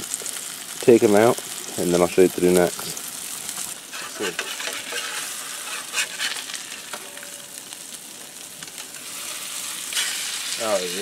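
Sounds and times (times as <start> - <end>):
fish sizzling in butter: 0.0 - 11.0
spatula scraping a pan: 3.5 - 7.6, 8.7 - 11.0.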